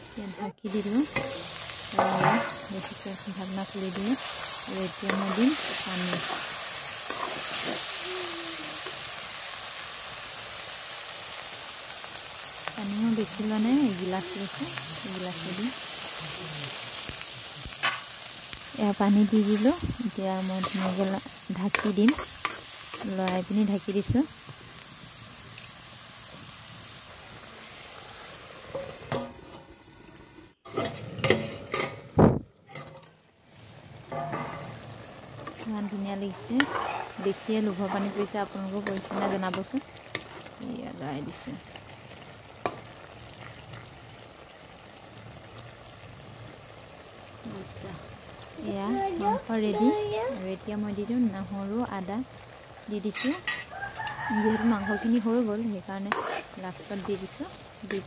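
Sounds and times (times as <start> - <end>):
food sizzling in hot oil: 0.0 - 32.5, 33.4 - 58.0
metal ladle scraping a pan: 1.1 - 3.0, 3.9 - 7.9, 32.7 - 35.7, 36.3 - 40.6, 53.2 - 54.3, 56.1 - 57.2.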